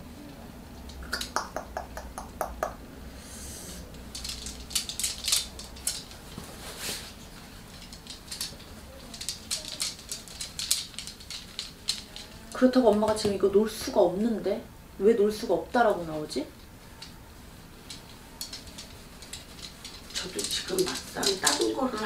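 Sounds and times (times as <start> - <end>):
low steady hum: 0.0 - 22.0
small hard objects clicking on desk: 0.8 - 2.8, 3.8 - 6.2, 7.7 - 13.4, 17.8 - 22.0.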